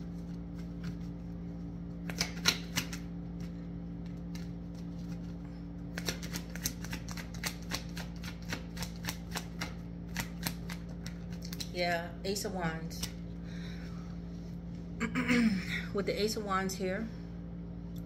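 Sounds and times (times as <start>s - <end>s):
steady low hum: 0.0s - 18.0s
cards shuffling clicks and slaps: 0.2s - 11.7s.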